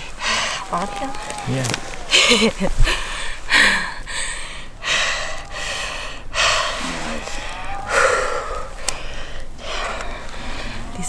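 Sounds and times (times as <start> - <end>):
person breathing hard: 0.0 - 0.7, 2.2 - 11.0.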